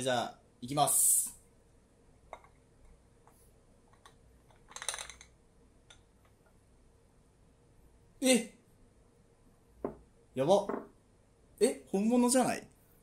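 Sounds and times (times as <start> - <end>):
rattling clicks: 4.0 - 5.3.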